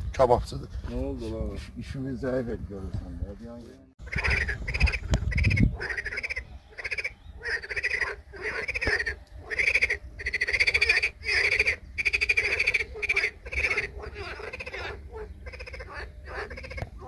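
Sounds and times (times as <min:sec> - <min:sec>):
frogs croaking in chorus: 0:04.0 - 0:17.0.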